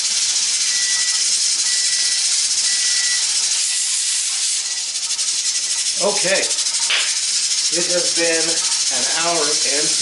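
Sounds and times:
pressure canner venting steam: 0:00.0 - 0:10.0
weighted regulator jiggling: 0:00.0 - 0:10.0
timer beeps: 0:00.6 - 0:03.9.

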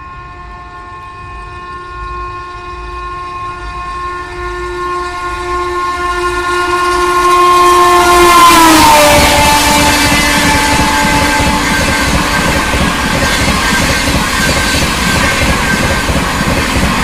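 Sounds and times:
locomotive horn blast: 0:00.0 - 0:17.0
train rumble: 0:00.0 - 0:17.0.

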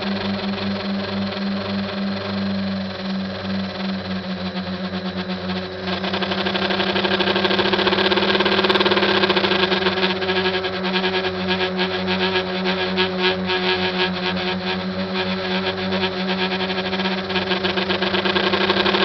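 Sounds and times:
quadcopter propellers buzzing: 0:00.0 - 0:19.0.

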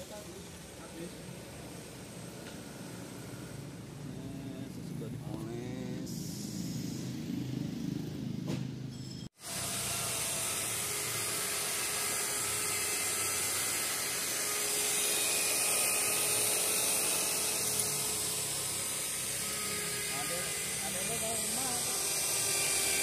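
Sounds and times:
rotary polisher whirring: 0:00.0 - 0:04.4, 0:09.3 - 0:23.0.

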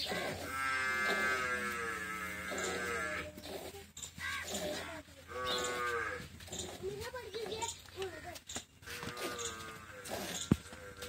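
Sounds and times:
cow mooing: 0:00.0 - 0:03.3, 0:05.3 - 0:06.2, 0:08.9 - 0:11.0.

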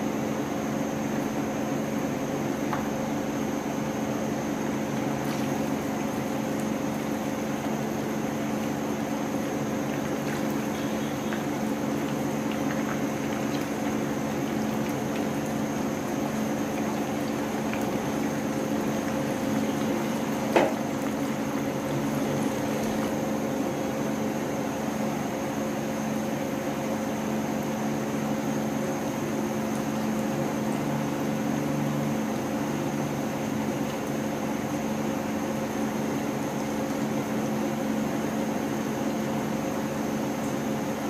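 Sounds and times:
steady low hum: 0:00.0 - 0:27.0
oil sizzling in a frying pan: 0:04.5 - 0:24.2.

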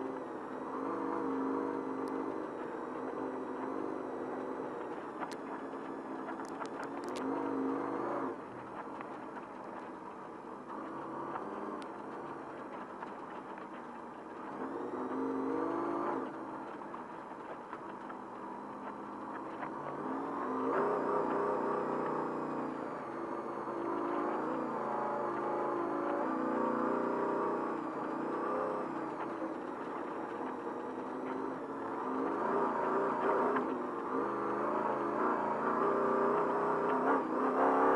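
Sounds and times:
truck engine revving: 0:00.0 - 0:09.2, 0:14.4 - 0:16.7, 0:18.4 - 0:37.9
sharp clicks: 0:06.3 - 0:07.3.

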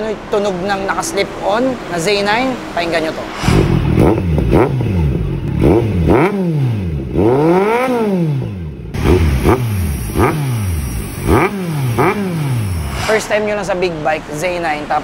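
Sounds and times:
motorcycle engine revving: 0:03.2 - 0:13.4.

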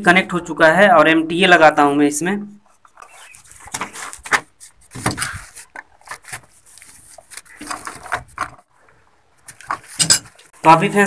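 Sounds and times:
bubble wrap crinkling: 0:02.7 - 0:08.7.

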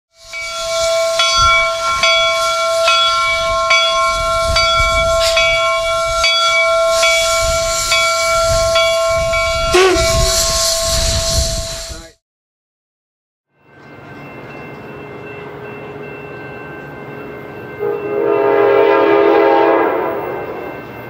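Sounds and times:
steam locomotive chime whistle: 0:00.1 - 0:12.1, 0:13.6 - 0:21.0
hissing steam: 0:00.2 - 0:03.5, 0:09.6 - 0:12.2.

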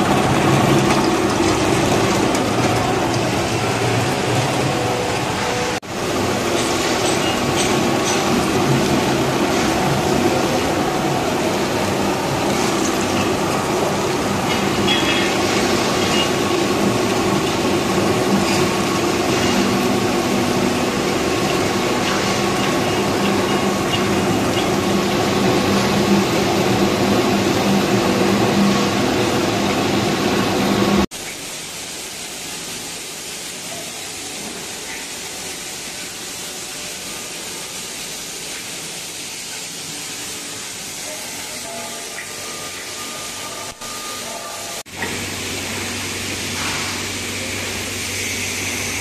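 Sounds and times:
workshop background: 0:00.0 - 0:49.0.

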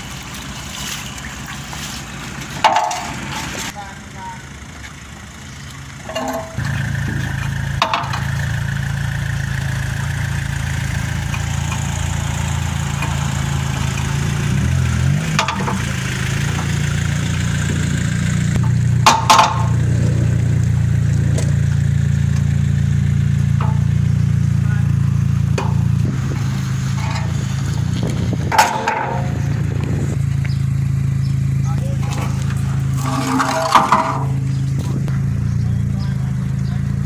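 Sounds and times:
car engine running slowly: 0:00.0 - 0:37.0
metal knocks from ramps: 0:02.6 - 0:03.2, 0:06.1 - 0:06.8, 0:07.8 - 0:08.4, 0:15.3 - 0:15.9, 0:18.6 - 0:19.9, 0:23.4 - 0:24.2, 0:25.5 - 0:30.5, 0:31.9 - 0:35.0.

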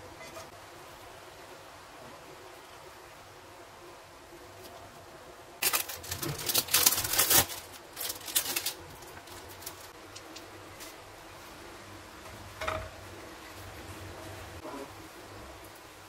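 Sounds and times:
plastic wrapping crinkling: 0:05.6 - 0:11.1.

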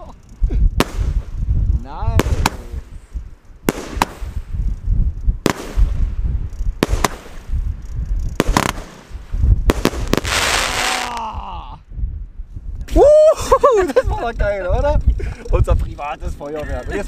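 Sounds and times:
firework crackling hiss: 0:00.0 - 0:04.8, 0:05.4 - 0:07.8, 0:08.4 - 0:11.3
wind rumble on microphone: 0:00.0 - 0:17.0
fireworks bangs: 0:00.8 - 0:01.3, 0:02.1 - 0:02.9, 0:03.6 - 0:04.5, 0:05.4 - 0:06.2, 0:06.8 - 0:07.5, 0:08.4 - 0:11.2
firework falling whistles: 0:08.4 - 0:11.2.

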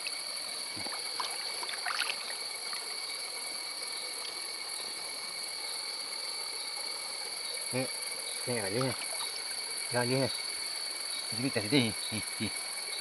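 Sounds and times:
small water splashes: 0:00.8 - 0:03.0, 0:08.7 - 0:09.4
water trickling and dripping: 0:00.8 - 0:03.0, 0:08.6 - 0:09.6.

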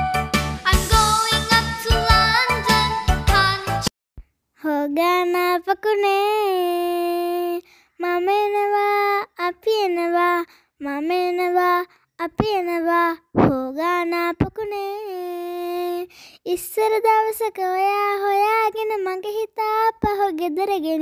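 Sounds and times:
child singing: 0:00.7 - 0:03.9, 0:04.6 - 0:21.0.

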